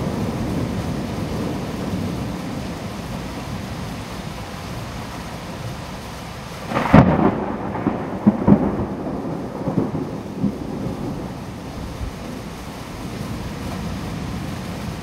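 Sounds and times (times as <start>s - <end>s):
torrential rain hissing: 0.0s - 15.0s
thunder cracking and rumbling: 6.6s - 13.4s.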